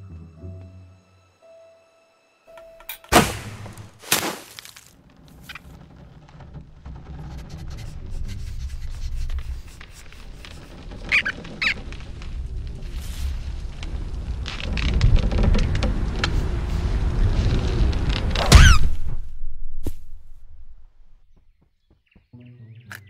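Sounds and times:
sharp cartoon hits: 0:03.0 - 0:04.6, 0:18.4 - 0:20.0
low rumble: 0:05.0 - 0:21.4
short high squeaks: 0:09.6 - 0:11.9, 0:18.4 - 0:19.0.

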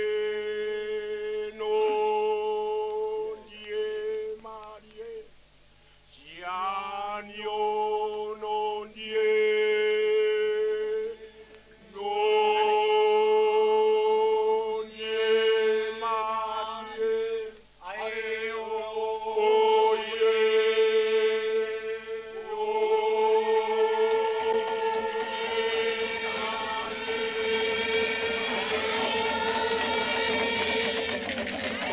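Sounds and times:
group of voices chanting: 0:13.6 - 0:31.9.

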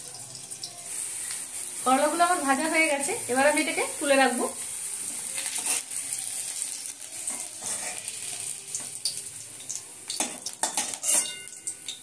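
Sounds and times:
hot oil sizzling in a wok: 0:00.0 - 0:12.0
metal spatula scraping: 0:04.5 - 0:08.9, 0:10.2 - 0:11.7
spatula clinking: 0:10.1 - 0:12.0.

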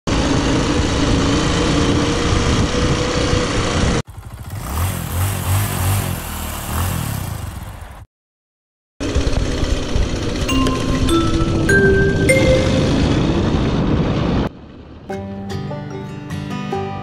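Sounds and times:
motorcycle engine running: 0:00.1 - 0:07.9, 0:09.0 - 0:10.5
music with bass line: 0:10.5 - 0:13.3.

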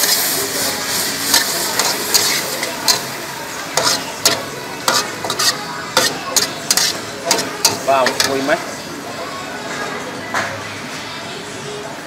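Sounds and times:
metal ladle scraping a wok: 0:00.0 - 0:08.6
food sizzling in a wok: 0:00.0 - 0:09.3.

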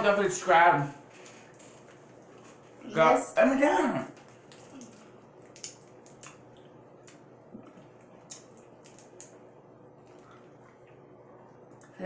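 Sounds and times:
sharp wrapper crackles: 0:04.2 - 0:06.4.

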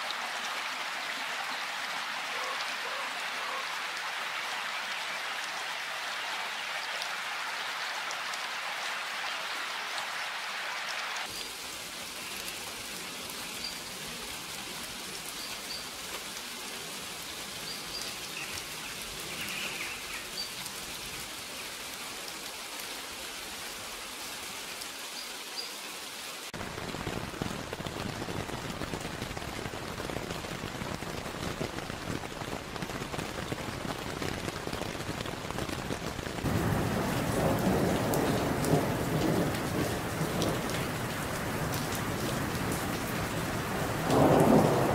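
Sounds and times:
rain falling: 0:00.0 - 0:44.9.

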